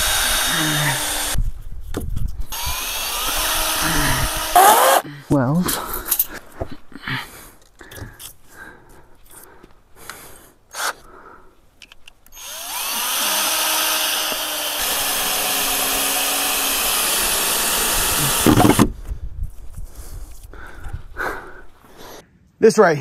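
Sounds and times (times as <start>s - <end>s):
power tool motor whining: 0.0s - 1.4s, 2.5s - 5.0s, 12.3s - 18.9s.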